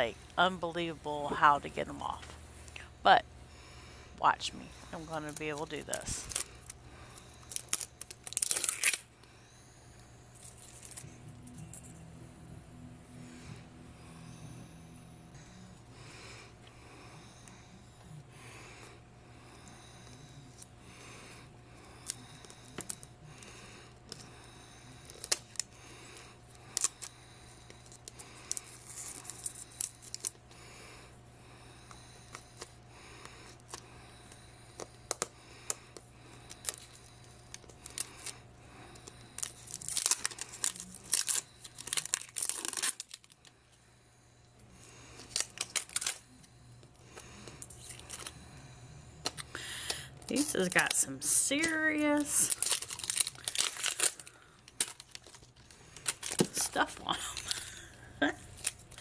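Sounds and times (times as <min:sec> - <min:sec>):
shrink wrap crinkling and tearing: 0:05.2 - 0:09.1, 0:10.4 - 0:11.1, 0:25.0 - 0:25.8, 0:26.6 - 0:27.1, 0:27.7 - 0:30.4, 0:36.5 - 0:38.4, 0:39.0 - 0:43.5, 0:45.2 - 0:46.3, 0:47.4 - 0:48.4, 0:49.2 - 0:59.0.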